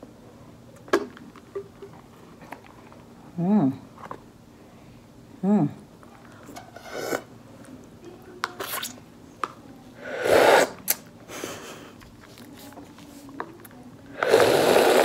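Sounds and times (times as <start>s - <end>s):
slurping through a straw: 6.8s - 7.3s, 10.0s - 10.8s, 14.1s - 15.0s.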